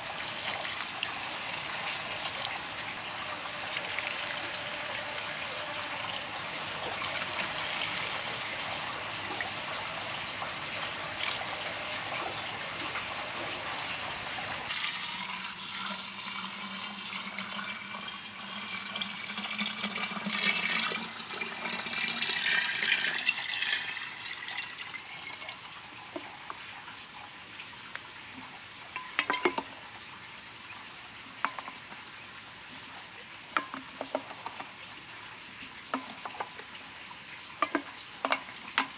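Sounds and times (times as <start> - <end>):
water pouring into glass jar: 0.0 - 11.9, 14.7 - 25.7
water dripping: 0.0 - 27.1, 28.9 - 30.0, 33.5 - 35.0, 35.7 - 38.9.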